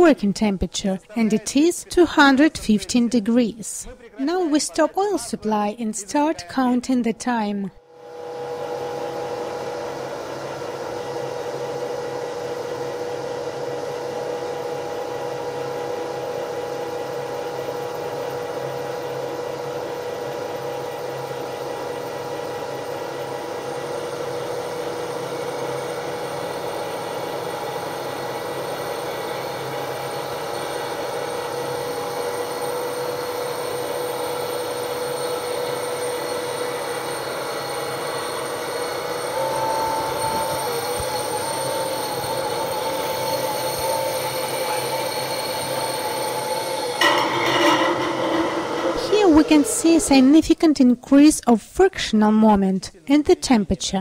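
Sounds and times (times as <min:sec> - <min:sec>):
machine roller whirring and whining: 0:08.0 - 0:50.5.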